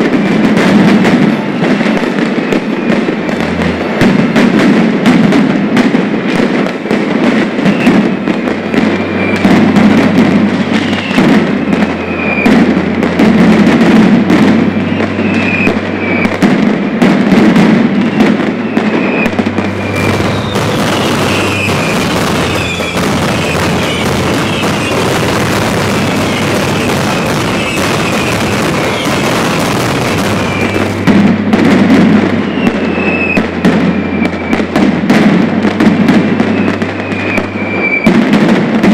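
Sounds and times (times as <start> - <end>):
firecrackers exploding: 0.0 - 38.9
short whistling tones: 14.8 - 16.3.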